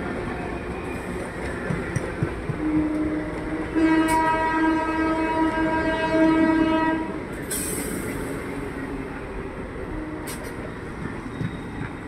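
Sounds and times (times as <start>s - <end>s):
train coaches rumbling past: 0.0s - 12.0s
train horn: 2.5s - 7.2s.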